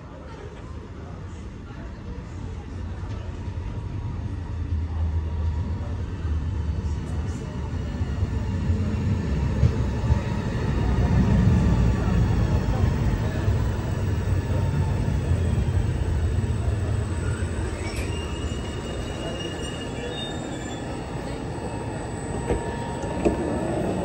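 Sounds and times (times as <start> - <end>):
brake squeal: 17.2 - 23.6.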